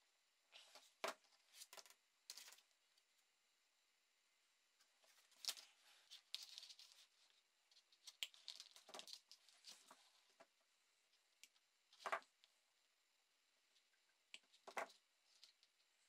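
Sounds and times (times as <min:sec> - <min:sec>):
soft plastic clicks and rustles: 0:04.8 - 0:12.6.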